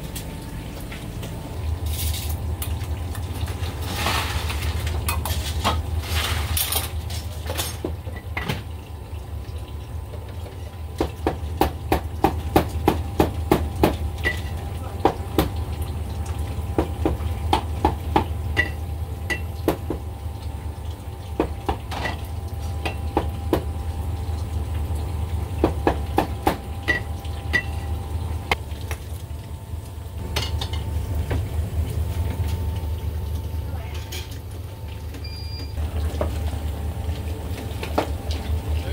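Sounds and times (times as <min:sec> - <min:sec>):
metal bowls and utensils clinking: 0:03.8 - 0:08.6.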